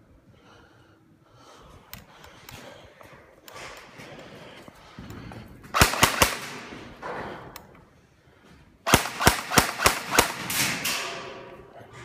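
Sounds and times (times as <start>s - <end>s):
airsoft rifle shots echoing: 5.7s - 7.0s, 8.8s - 11.5s.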